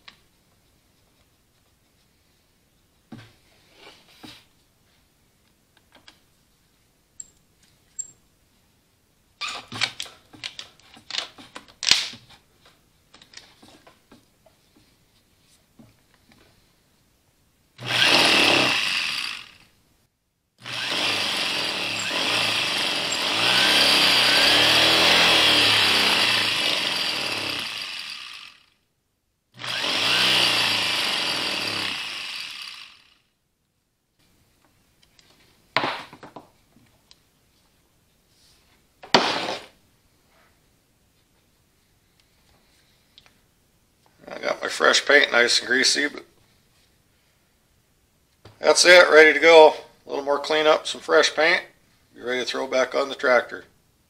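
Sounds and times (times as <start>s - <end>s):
starter motor spinning: 17.8s - 19.7s, 20.6s - 28.7s, 29.6s - 33.2s.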